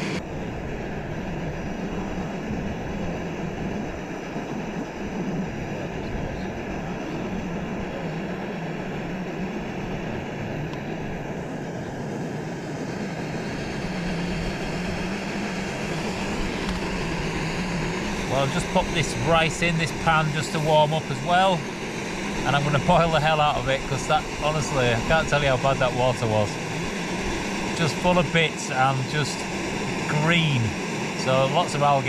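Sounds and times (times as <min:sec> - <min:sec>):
gas stove burner running: 0:00.0 - 0:32.0.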